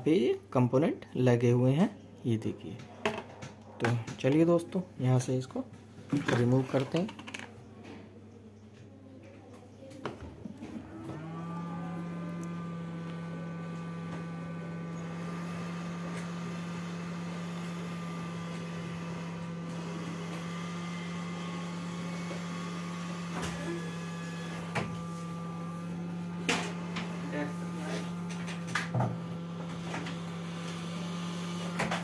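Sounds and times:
hot air gun fan humming: 10.5 - 32.0.

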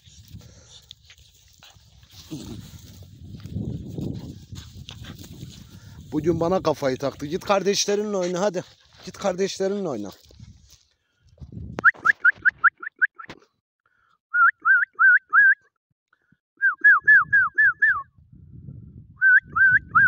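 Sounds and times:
person whistling short notes: 11.8 - 13.4, 14.3 - 15.7, 16.6 - 18.1, 19.2 - 20.0.

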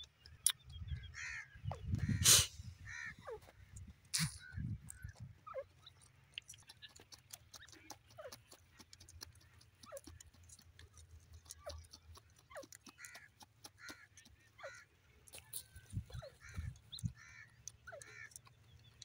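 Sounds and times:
bird chirping: 0.0 - 19.0
bird scratching in dry soil: 6.1 - 19.0.

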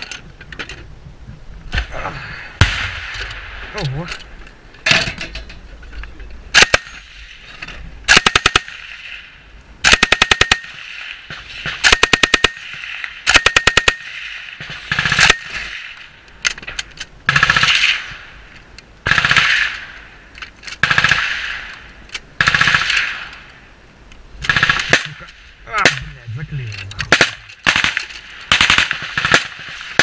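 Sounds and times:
machine gun firing bursts: 8.1 - 8.8, 9.8 - 10.8, 11.7 - 15.7, 17.3 - 18.0, 19.1 - 19.7, 20.8 - 21.4, 22.4 - 23.2, 24.4 - 25.2, 27.1 - 30.0.

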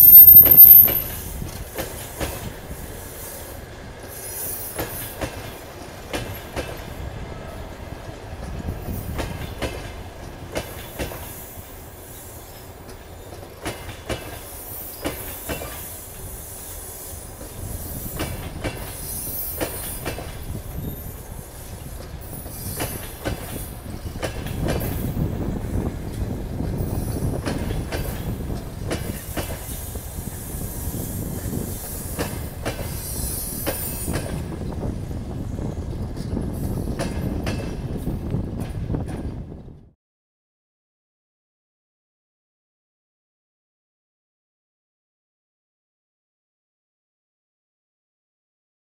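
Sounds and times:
train rumble: 0.0 - 40.0
train wheels clicking over rail joints: 0.4 - 7.0, 8.0 - 39.9.

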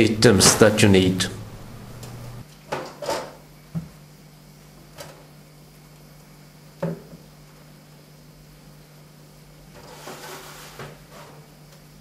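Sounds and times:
faint low hum: 0.0 - 2.4
plastic drawer scraping: 0.2 - 1.8.

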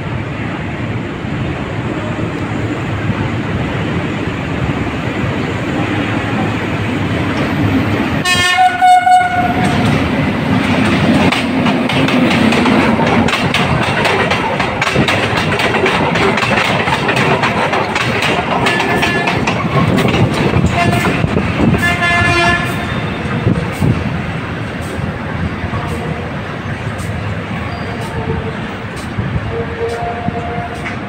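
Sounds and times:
train engine hum: 0.0 - 31.0
train horn blast: 8.2 - 9.8, 20.7 - 23.4, 29.4 - 31.0
wheel clicks over rail joints: 10.8 - 21.4.

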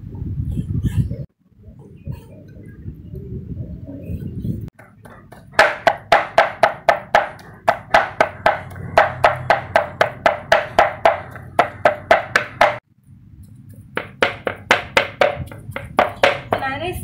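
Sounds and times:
cleaver chopping on wooden board: 4.8 - 12.8, 14.0 - 16.6.

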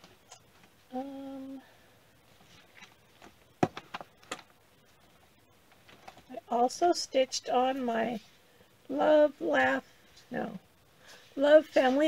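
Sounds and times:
woman humming: 0.9 - 1.7.

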